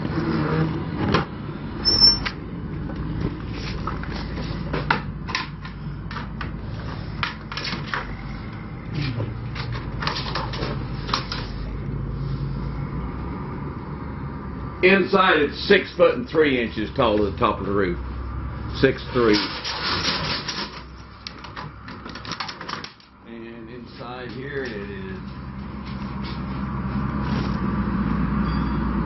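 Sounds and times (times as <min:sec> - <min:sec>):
high-pitched squeak: 0:01.8 - 0:02.3, 0:28.4 - 0:29.0
footsteps inside trailer: 0:24.0 - 0:28.2.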